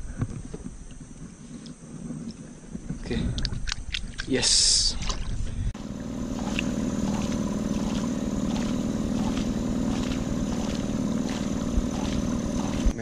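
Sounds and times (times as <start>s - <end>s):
small boat engine droning: 5.0s - 13.0s.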